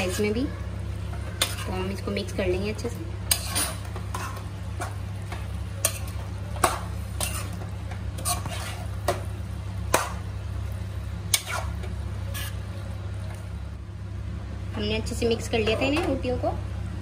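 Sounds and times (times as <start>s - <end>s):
metal spoon stirring in a pan: 0.0s - 2.4s, 3.2s - 10.3s, 11.3s - 12.7s
steady low hum: 0.0s - 17.0s.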